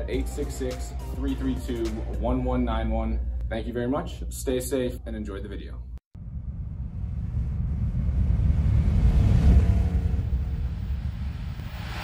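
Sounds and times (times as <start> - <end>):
deep rumble: 6.1 - 12.0
rising hiss: 7.6 - 12.0.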